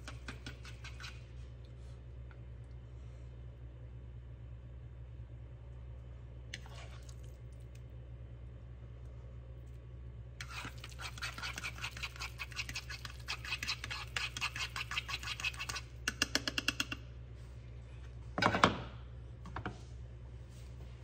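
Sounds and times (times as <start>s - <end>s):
fork beating eggs in a bowl: 0.0s - 1.3s, 10.4s - 17.0s.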